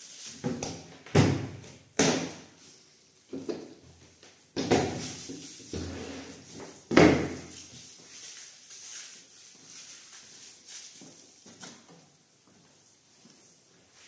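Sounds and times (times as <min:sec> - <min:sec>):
shuffling footsteps: 0:04.9 - 0:14.0.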